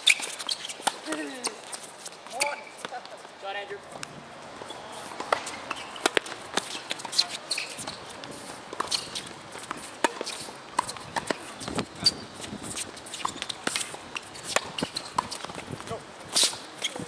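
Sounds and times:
sneaker squeaks: 0.0s - 3.0s, 4.6s - 17.0s
racket striking tennis ball: 5.1s - 11.6s.

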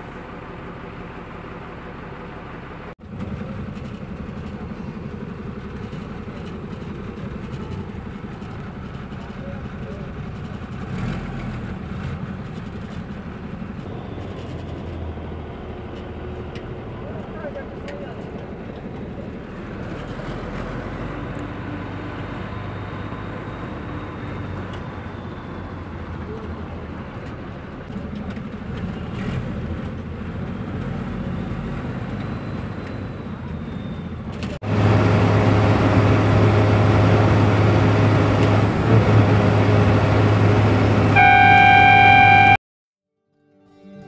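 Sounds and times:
bus engine and road noise: 0.0s - 42.6s
loud engine drone: 34.6s - 42.6s.

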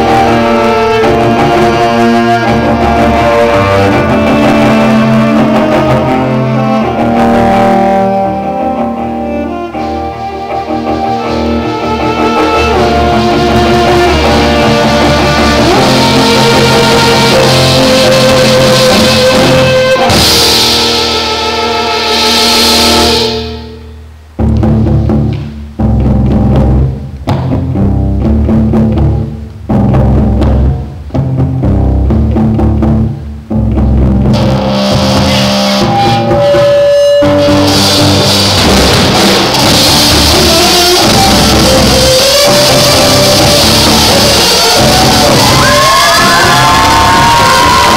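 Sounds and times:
cellos bowing chords: 0.0s - 27.0s, 27.7s - 47.9s
drums: 0.0s - 47.9s
cymbal crash: 37.6s - 41.5s.

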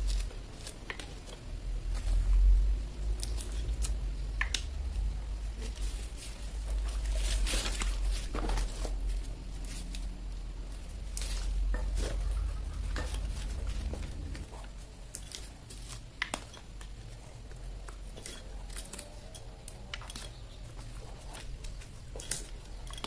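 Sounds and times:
low rumble: 8.9s - 14.9s
nuts clicking and rattling: 15.0s - 23.0s.

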